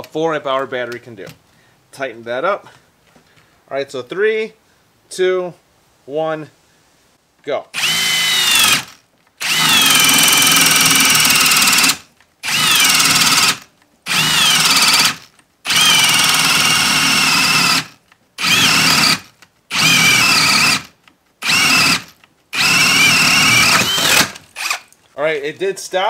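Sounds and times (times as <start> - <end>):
hammer drill boring into wood: 7.8 - 24.9.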